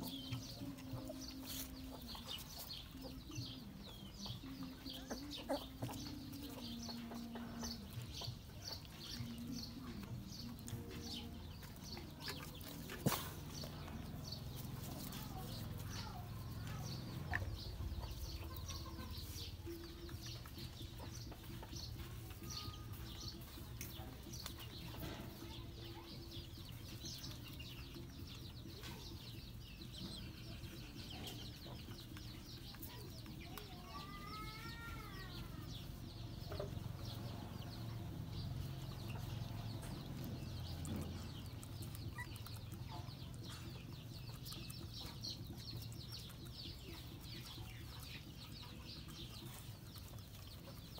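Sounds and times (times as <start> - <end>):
puppies suckling clicking and smacking: 39.3 - 50.9.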